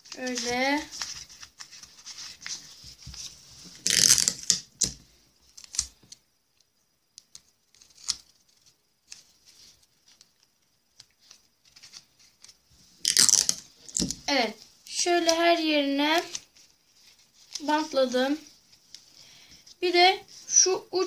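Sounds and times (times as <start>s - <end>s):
paper rustling: 0.0s - 4.6s, 7.2s - 14.2s, 16.2s - 19.1s
adhesive tape tearing off roll: 3.8s - 5.0s, 13.0s - 14.2s.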